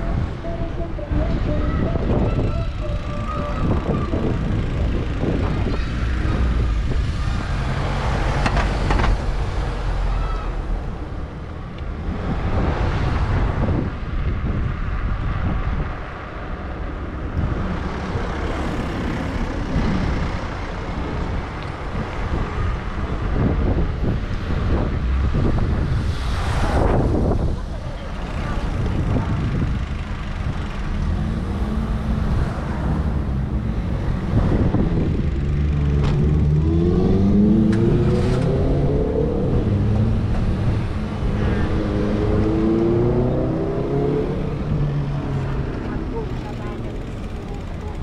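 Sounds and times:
low traffic rumble: 0.0 - 48.0
vehicles passing: 0.0 - 48.0.

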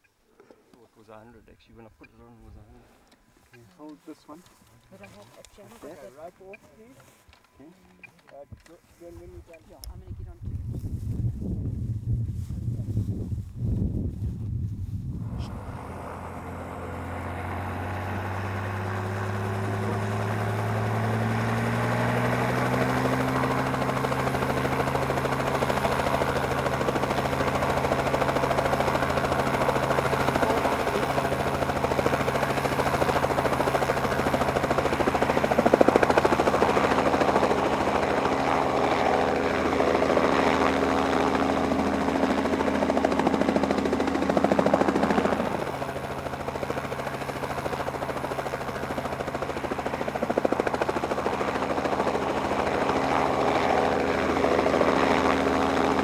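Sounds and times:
engine drone: 14.2 - 56.0.

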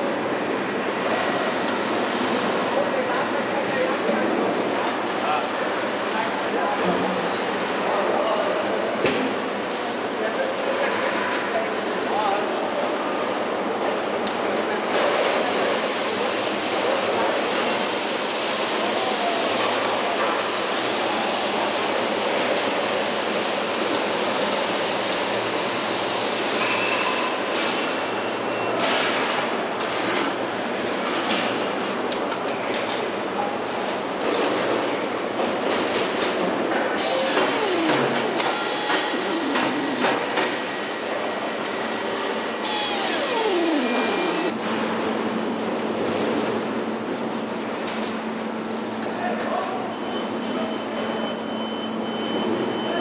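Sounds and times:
machinery hum and clatter: 0.0 - 53.0
machinery hiss and rumble: 36.5 - 47.3
whine sliding down in pitch: 42.7 - 44.6.

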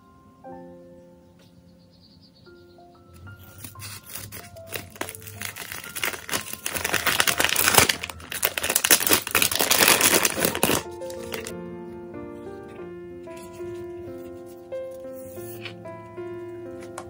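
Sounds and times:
plastic bag crinkling: 3.4 - 11.5.

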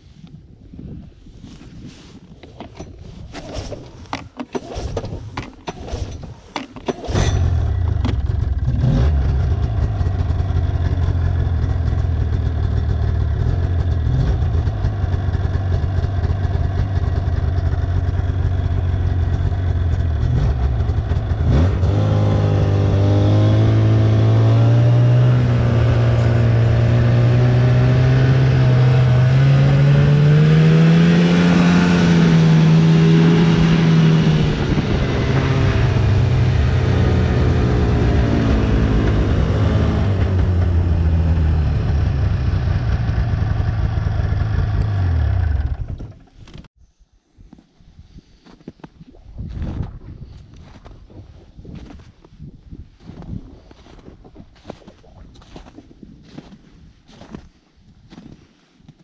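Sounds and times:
snowmobile engine running: 2.6 - 46.2.

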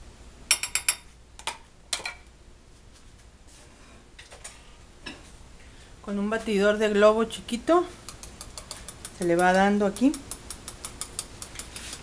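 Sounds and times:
metal spoon against bowl: 8.0 - 12.0.

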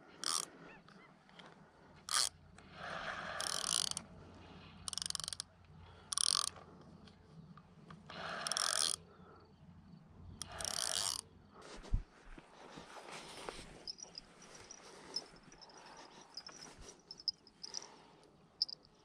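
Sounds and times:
fishing reel whirring and clicking: 0.2 - 0.5, 2.1 - 2.4, 3.1 - 4.1, 4.8 - 6.6, 8.2 - 9.0, 10.4 - 11.3.

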